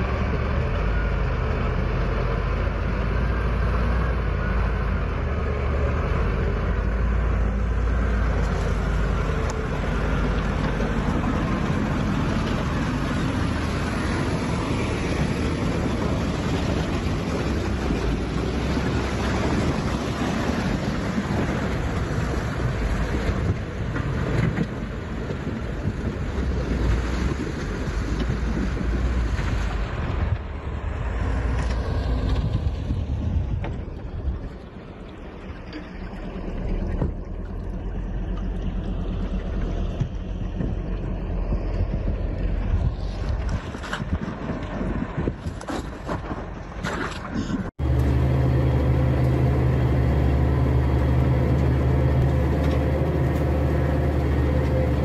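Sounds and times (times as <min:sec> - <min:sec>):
diesel engine low hum: 0:00.0 - 0:45.6, 0:46.2 - 0:55.0
truck engine labouring: 0:00.0 - 0:55.0
wind on microphone: 0:08.5 - 0:35.1, 0:39.2 - 0:47.8.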